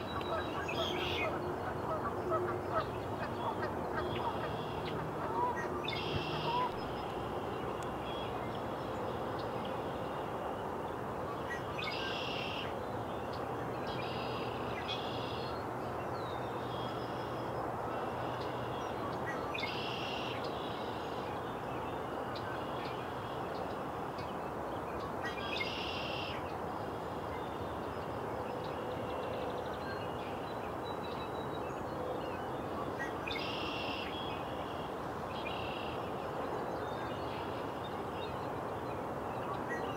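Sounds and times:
bird calling: 0:00.0 - 0:08.4
steady background hiss: 0:00.0 - 0:39.9.

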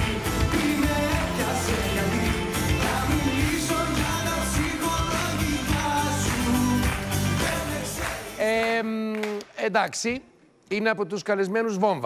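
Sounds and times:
pop song with singing: 0:00.0 - 0:09.4.

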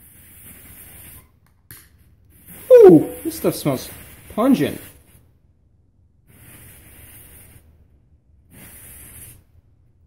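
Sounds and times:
torch lighter jet hissing: 0:00.0 - 0:01.3, 0:06.3 - 0:07.8, 0:08.5 - 0:09.6.

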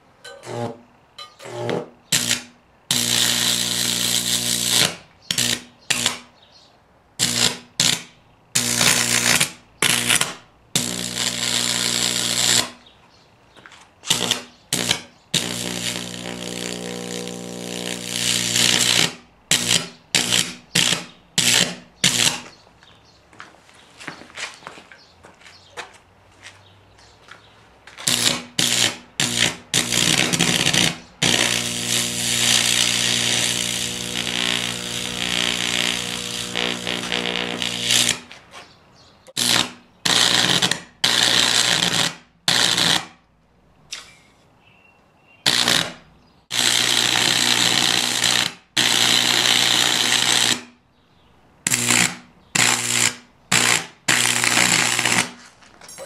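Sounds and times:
electric arc buzzing crackle: 0:01.4 - 0:06.3, 0:07.2 - 0:12.8, 0:14.0 - 0:22.5, 0:28.0 - 0:38.4, 0:39.3 - 0:43.2, 0:45.4 - 0:50.7, 0:51.7 - 0:55.4.

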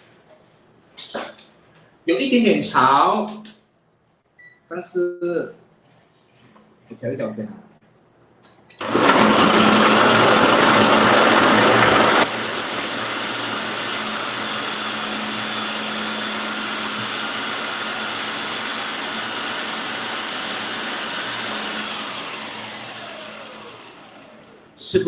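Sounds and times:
food processor motor chopping: 0:08.8 - 0:24.7.

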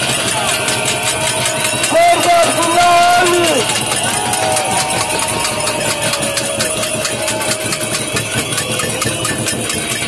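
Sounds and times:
protest crowd din: 0:00.0 - 0:10.0
sharp claps or clicks: 0:00.0 - 0:10.0.

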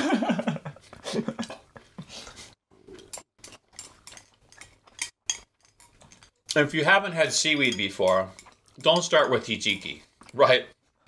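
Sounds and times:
chopsticks clicking on ceramic bowls: 0:03.1 - 0:06.6, 0:07.4 - 0:10.4.

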